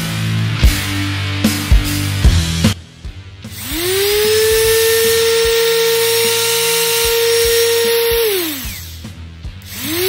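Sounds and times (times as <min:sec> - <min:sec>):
electric sander running: 0:03.5 - 0:10.0.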